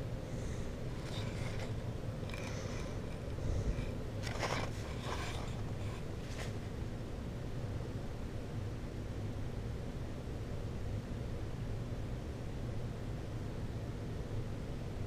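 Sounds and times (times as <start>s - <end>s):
air conditioning hum: 0.0s - 15.0s
faint rustles and scrapes: 0.3s - 6.7s.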